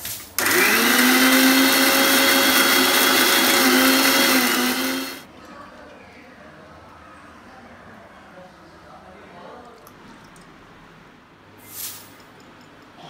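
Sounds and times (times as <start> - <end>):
mixer grinder motor running: 0.4 - 5.3.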